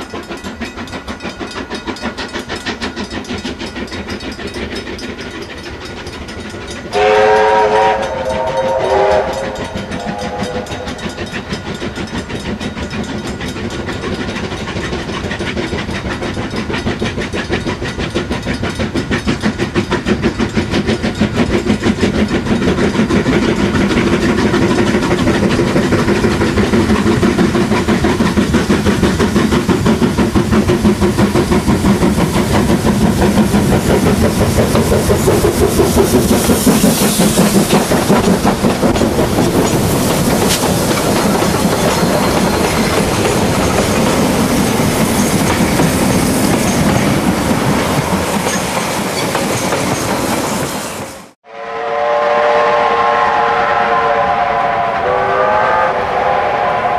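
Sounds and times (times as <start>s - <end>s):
locomotive exhaust beats: 0.0s - 50.8s
wheels on rails: 0.0s - 51.4s
steam locomotive whistle: 6.9s - 11.3s, 51.4s - 56.9s.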